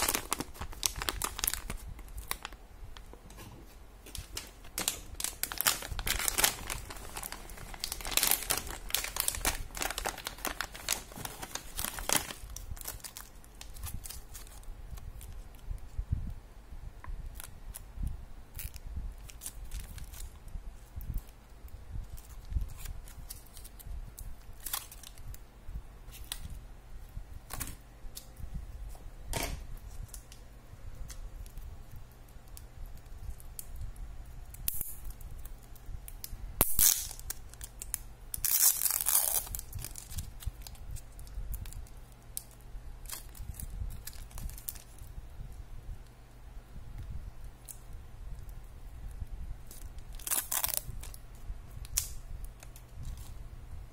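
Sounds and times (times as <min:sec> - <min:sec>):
plastic tearing: 0:00.0 - 0:02.6, 0:04.1 - 0:15.6, 0:36.6 - 0:41.8, 0:49.7 - 0:51.2
plastic packaging crinkling: 0:00.0 - 0:03.2, 0:04.0 - 0:15.6, 0:18.5 - 0:21.4, 0:22.0 - 0:25.4, 0:34.5 - 0:45.1, 0:49.6 - 0:51.2.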